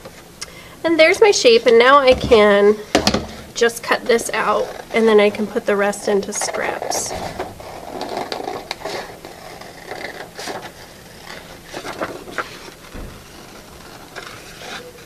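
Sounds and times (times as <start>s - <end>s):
paper rustling: 6.2s - 15.0s.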